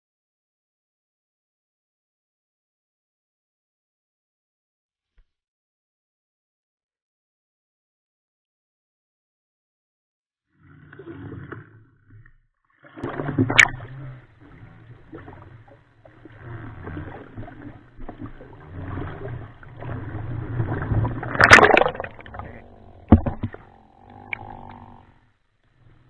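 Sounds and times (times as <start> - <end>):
sea water sloshing: 12.8 - 25.2
sharp water splash: 13.0 - 14.0, 16.7 - 22.4.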